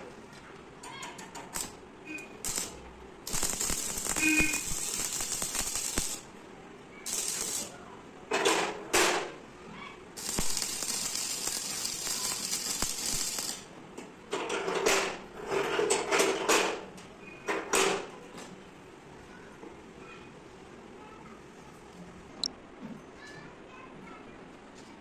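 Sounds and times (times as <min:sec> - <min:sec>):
arc welding crackle and hiss: 0:00.8 - 0:06.4, 0:07.0 - 0:07.8, 0:10.1 - 0:13.7.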